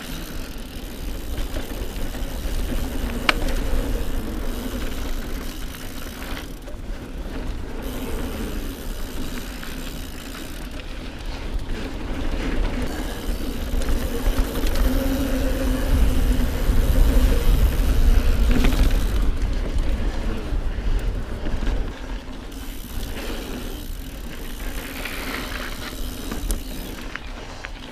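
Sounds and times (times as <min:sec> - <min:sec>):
bike rattling and clicking: 0:00.0 - 0:27.9
bike tyres rumbling on dirt: 0:00.0 - 0:27.9
wind buffeting microphone: 0:10.9 - 0:27.9.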